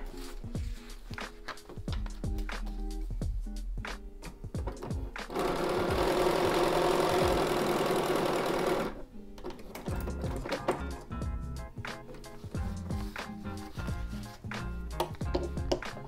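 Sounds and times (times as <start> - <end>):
sewing machine stitching: 5.3 - 9.0.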